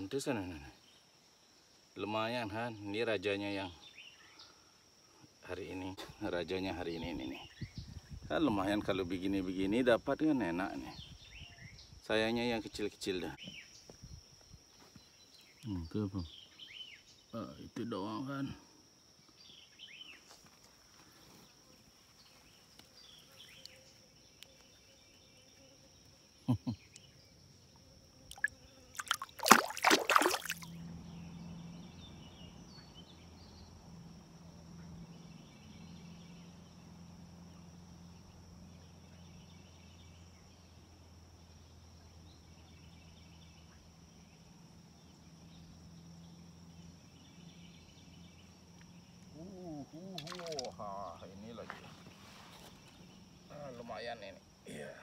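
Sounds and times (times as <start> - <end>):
insects buzzing and chirping: 0.0 - 55.0
splashy noise burst: 29.0 - 30.7.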